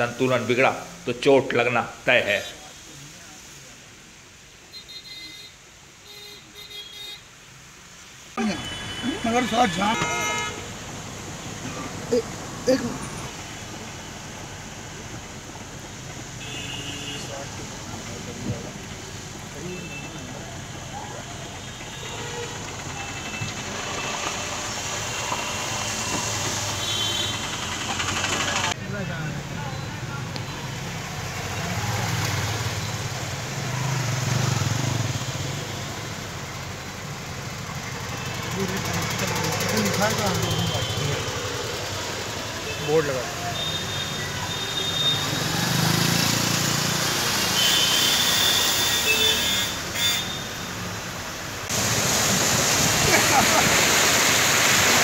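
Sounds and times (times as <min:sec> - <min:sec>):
tyres hissing on wet road: 0:00.0 - 0:55.0
vehicle engines running: 0:20.2 - 0:47.6.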